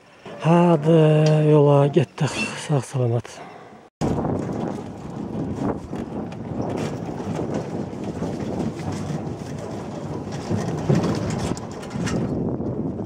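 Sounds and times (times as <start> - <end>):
bumpy ride rumble: 4.0 - 13.0.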